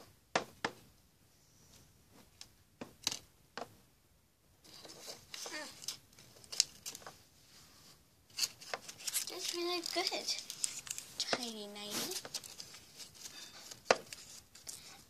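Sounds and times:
paper rustling: 0:04.6 - 0:15.0
plastic figures tapping on tabletop: 0:11.2 - 0:11.6.

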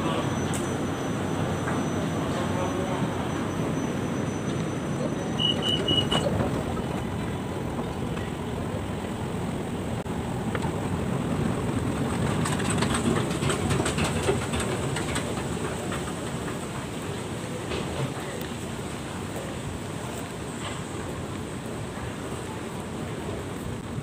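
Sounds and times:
short high beeps: 0:00.0 - 0:06.4
passenger crowd: 0:00.0 - 0:24.0
running escalator: 0:00.0 - 0:24.0.

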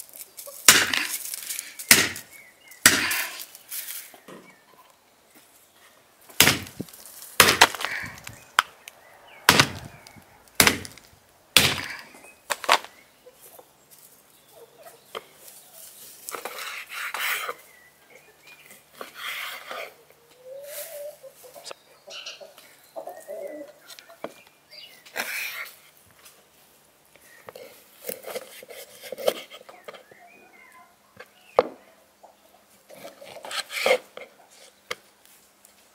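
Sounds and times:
knife chopping on wooden board: 0:01.9 - 0:02.2, 0:06.4 - 0:06.7, 0:10.6 - 0:10.9
chickens clucking: 0:17.2 - 0:24.4, 0:29.1 - 0:34.7.

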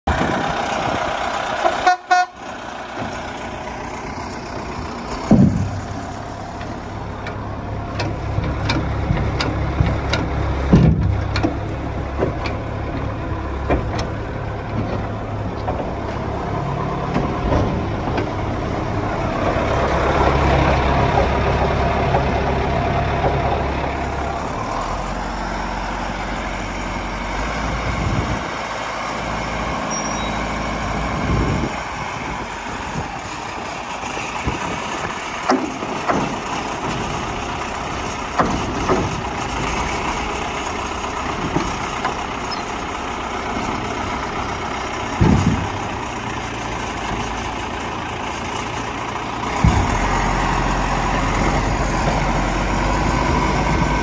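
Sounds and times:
diesel engine running: 0:00.0 - 0:54.0
sharp metallic knocks: 0:38.3 - 0:39.3.

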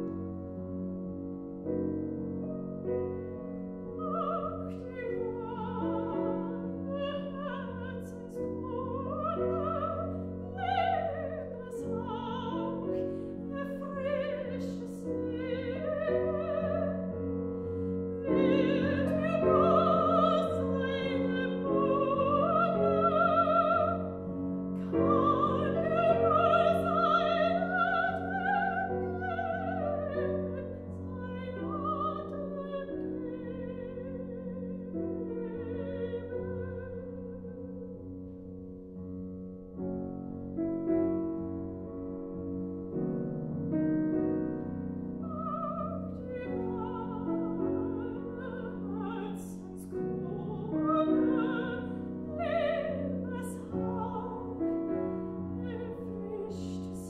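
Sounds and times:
grand piano: 0:00.0 - 0:57.0
soprano singing with vibrato: 0:04.0 - 0:17.3, 0:18.1 - 0:38.0, 0:45.2 - 0:57.0.

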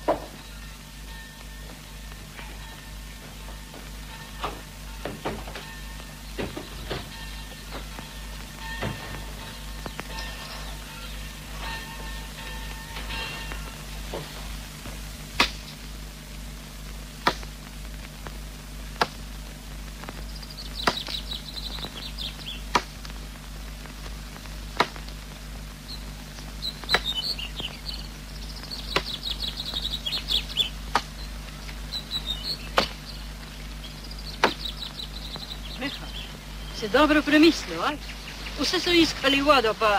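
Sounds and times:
small birds chirping: 0:00.0 - 0:16.0, 0:16.8 - 0:39.9
low steady film hum: 0:00.0 - 0:39.9.

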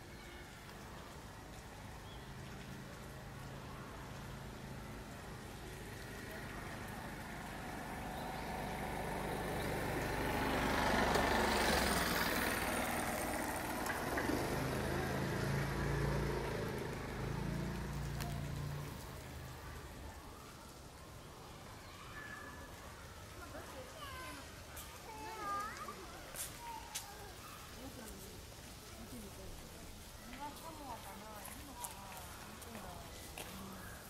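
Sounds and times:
motor vehicle passing by: 0:00.5 - 0:21.3.

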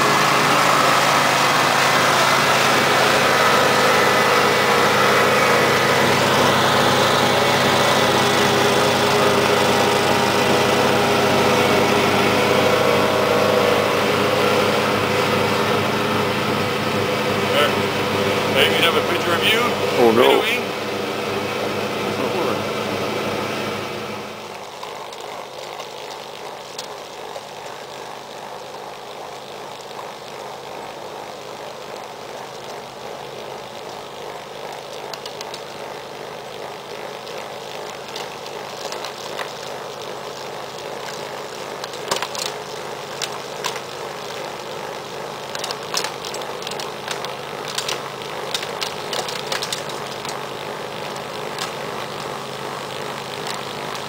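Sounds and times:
lawn tractor engine drone: 0:00.0 - 0:54.0
sharp ticks: 0:32.0 - 0:44.6, 0:45.3 - 0:52.3.

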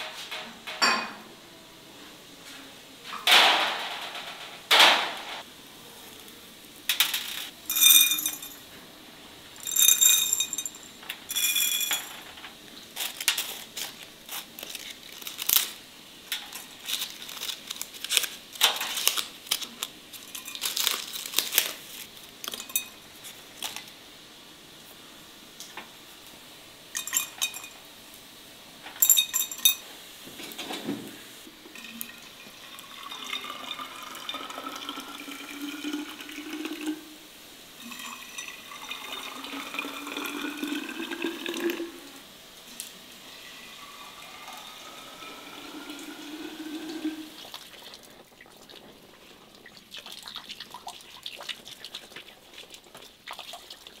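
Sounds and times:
glass bottles clinking: 0:07.7 - 0:08.6, 0:09.6 - 0:12.4, 0:22.5 - 0:23.0, 0:27.0 - 0:27.8, 0:29.0 - 0:29.8.

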